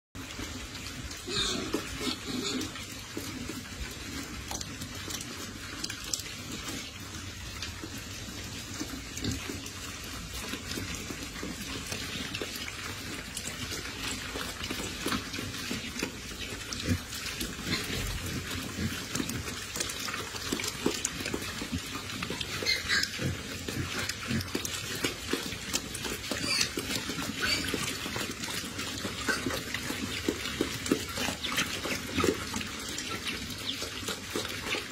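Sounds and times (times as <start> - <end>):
pigs chewing dry feed: 0.2 - 34.9.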